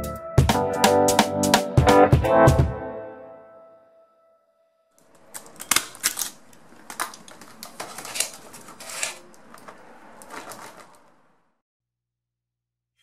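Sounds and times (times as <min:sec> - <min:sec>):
plastic packaging crinkling: 0:05.0 - 0:11.3.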